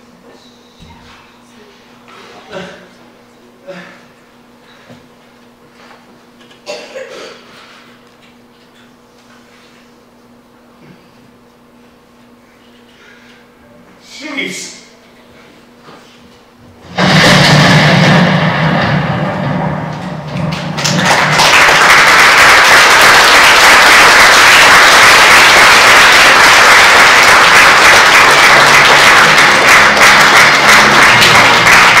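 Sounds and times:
audience applauding: 20.2 - 32.0.

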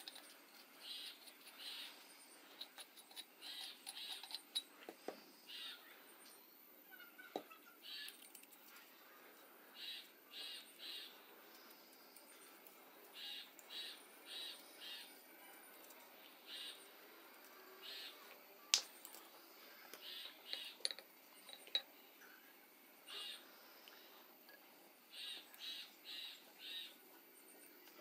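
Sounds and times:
faint bird chirps: 0.2 - 28.0
metal pipe fittings clicking: 20.5 - 21.9.

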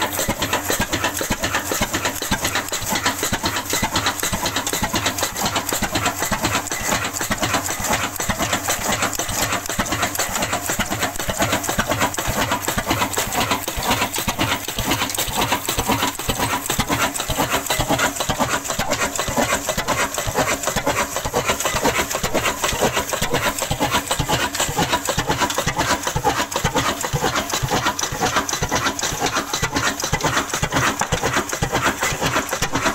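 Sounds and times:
diesel engine clattering: 0.0 - 32.9.

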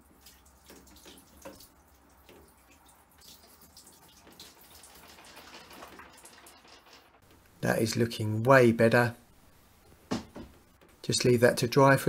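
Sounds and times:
water dripping and trickling: 0.0 - 8.6.

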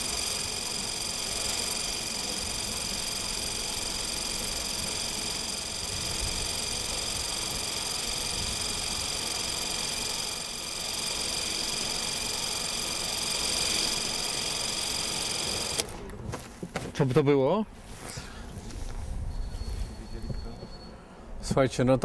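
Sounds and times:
small motor whirring: 0.0 - 15.9.

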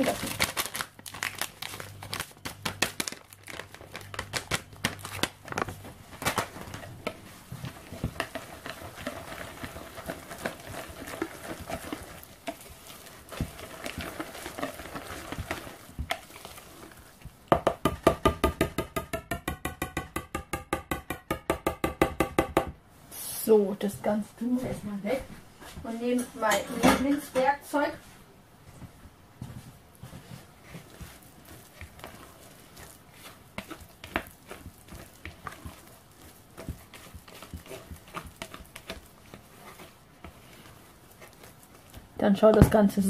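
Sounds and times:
packet crinkling: 0.0 - 6.9, 7.7 - 17.2
whisk scraping plastic bowl: 6.5 - 17.3, 30.1 - 43.0
whisk beating fast: 6.7 - 19.9, 30.6 - 42.8.

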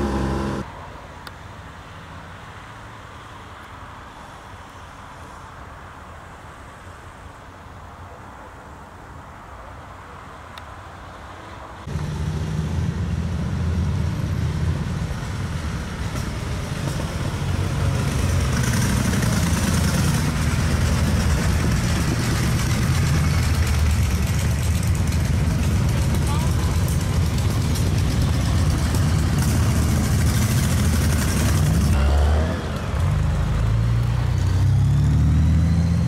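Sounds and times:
motorcycles riding past: 0.0 - 0.7, 11.8 - 36.0
faint roadside ambience: 0.0 - 36.0.

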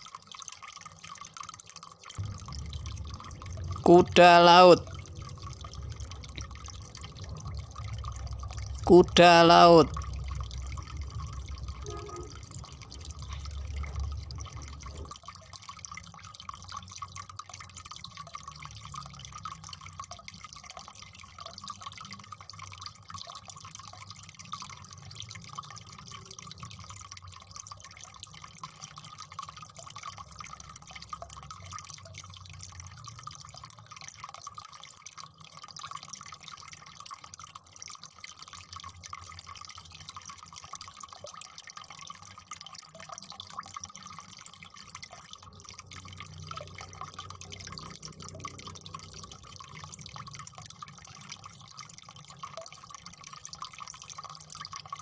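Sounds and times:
low rumble: 2.2 - 3.9, 4.8 - 8.9, 9.9 - 15.1
dripping water: 2.2 - 15.1, 37.8 - 55.0.

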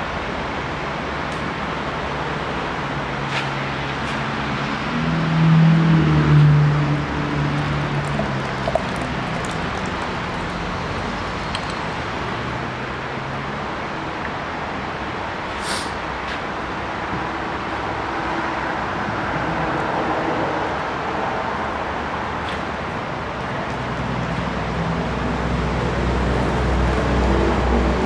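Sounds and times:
traffic background noise: 0.0 - 28.0
vehicle engine hum: 2.0 - 15.3.

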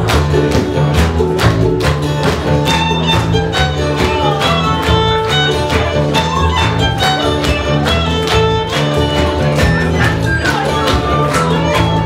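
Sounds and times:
acoustic guitar: 0.0 - 12.0
bass guitar: 0.0 - 12.0
fiddle playing: 2.4 - 12.0.

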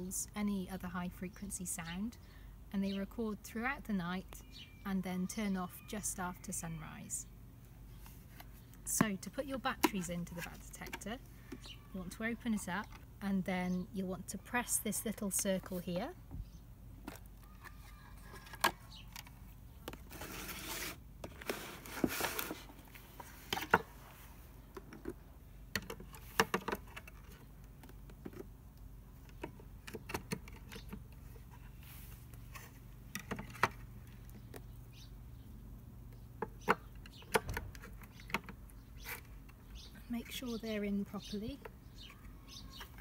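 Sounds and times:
rustling: 17.1 - 25.1.

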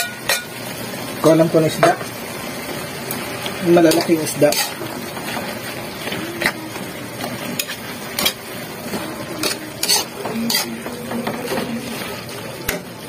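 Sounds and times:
metal clinking on pan: 0.0 - 0.6, 7.6 - 8.4
food sizzling: 0.0 - 13.0
ladle stirring in a wok: 1.7 - 13.0.

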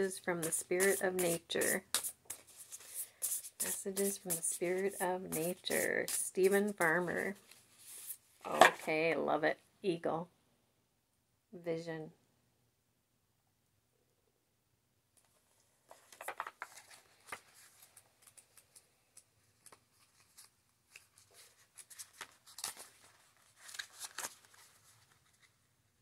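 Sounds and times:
book pages rustling: 0.4 - 8.9, 15.2 - 25.6.

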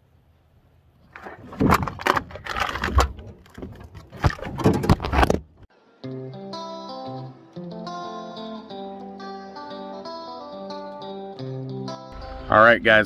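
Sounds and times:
gear knocking in metal boat: 1.2 - 5.6
guitar music: 5.9 - 13.0.

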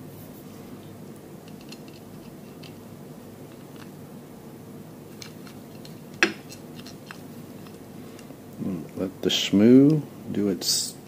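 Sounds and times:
steady low hum: 0.0 - 11.0
small metal parts clicking: 1.5 - 2.8.

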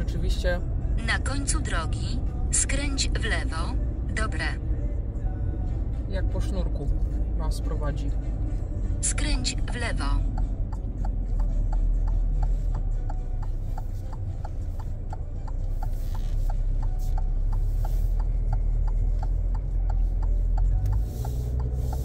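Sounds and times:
car rolling rumble: 0.0 - 22.0
turn-signal indicator ticking: 6.5 - 22.0.

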